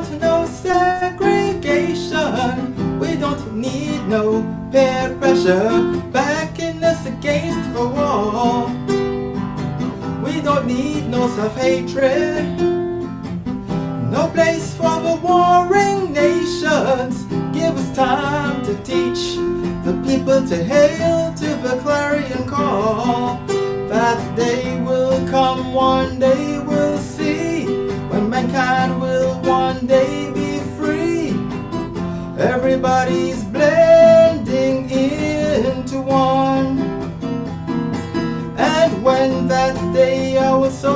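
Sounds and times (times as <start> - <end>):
man singing: 0.0 - 8.9, 10.0 - 12.8, 14.0 - 37.1, 38.4 - 40.9
acoustic guitar strumming: 0.0 - 40.9.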